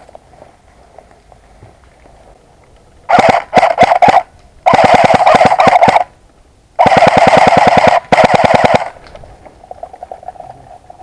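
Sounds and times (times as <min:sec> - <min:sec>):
airsoft rifle full auto bursts: 0:03.1 - 0:06.1, 0:06.8 - 0:09.0.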